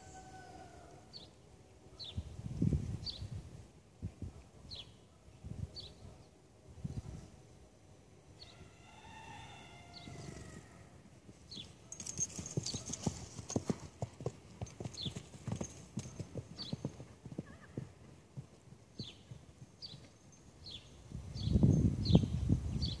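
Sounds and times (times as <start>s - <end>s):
horse hoofbeats: 11.2s - 20.2s.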